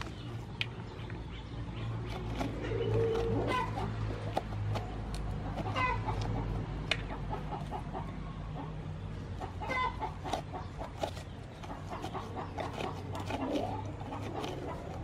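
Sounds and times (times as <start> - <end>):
chickens clucking: 0.1 - 15.0
metal spoon scraping pumpkin: 1.8 - 6.4, 9.5 - 15.0.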